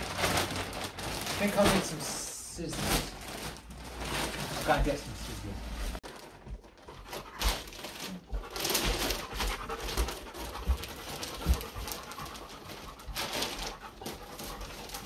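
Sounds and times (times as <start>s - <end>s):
plastic wrapping crinkling: 0.0s - 15.0s
dog panting and sniffing: 6.2s - 15.0s.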